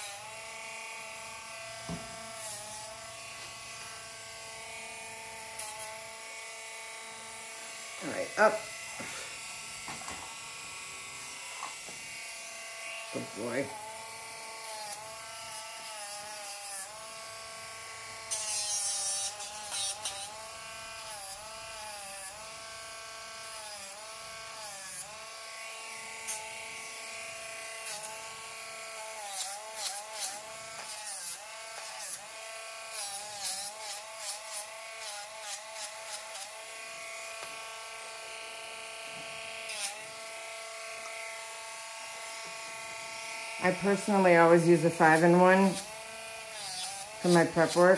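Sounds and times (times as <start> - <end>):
rotary nail grinder whining: 0.0 - 47.9
scratchy nail grinding: 1.9 - 4.0, 4.7 - 6.2, 12.8 - 17.1, 18.2 - 22.4, 27.6 - 36.7, 39.5 - 40.2, 43.6 - 47.9.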